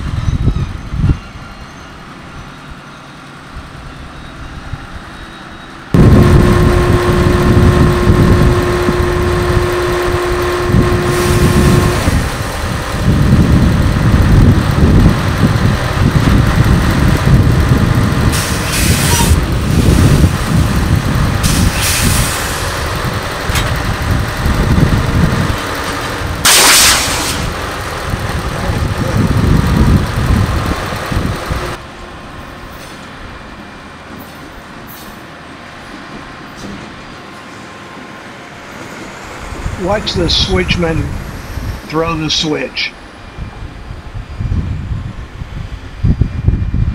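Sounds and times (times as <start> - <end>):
diesel locomotive rumbling: 0.0 - 46.9
air hissing: 21.4 - 22.8, 26.4 - 27.6.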